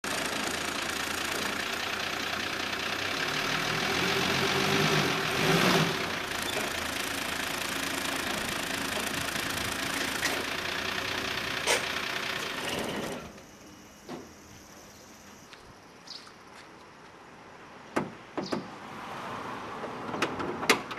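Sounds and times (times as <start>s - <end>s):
diesel truck engine running: 0.0s - 15.6s.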